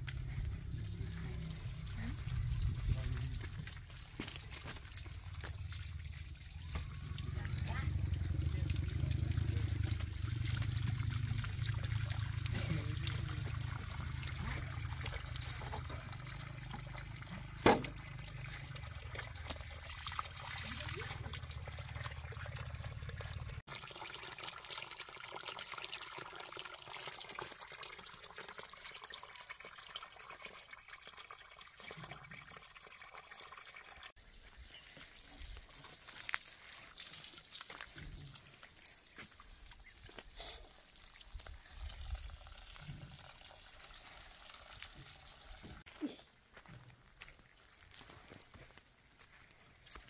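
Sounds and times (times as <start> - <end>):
running water pouring: 0.0 - 45.9.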